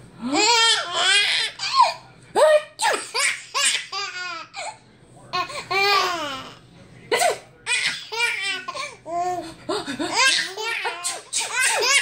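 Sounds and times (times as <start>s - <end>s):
baby laughing: 10.0s - 12.0s.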